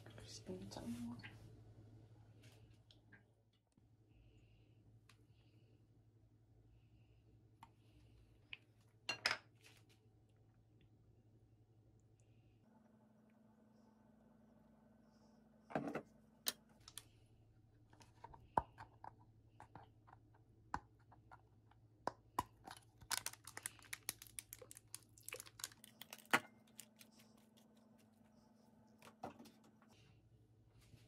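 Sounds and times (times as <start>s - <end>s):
faint low hum: 0.0s - 31.0s
plastic pack crinkling: 22.6s - 27.7s.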